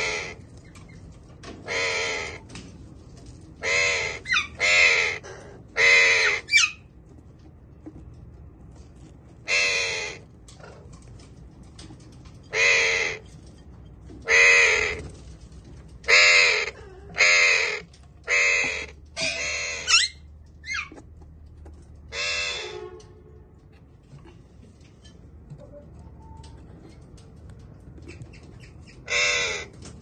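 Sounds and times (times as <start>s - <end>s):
parrot harsh raspy squawks: 0.0s - 0.4s, 1.6s - 2.4s, 3.6s - 6.9s, 9.5s - 10.8s, 12.5s - 13.2s, 14.3s - 15.1s, 16.0s - 21.0s, 22.1s - 22.9s, 28.9s - 29.7s.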